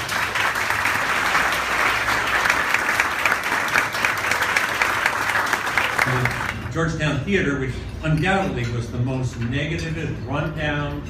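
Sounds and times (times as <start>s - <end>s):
crowd applauding: 0.0s - 6.7s.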